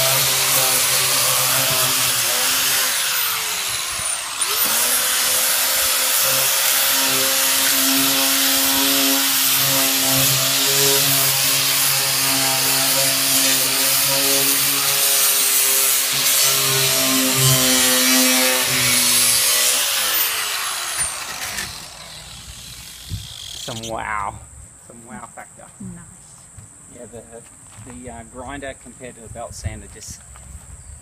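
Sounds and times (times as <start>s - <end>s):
electric sander sanding timber: 0.0s - 23.9s.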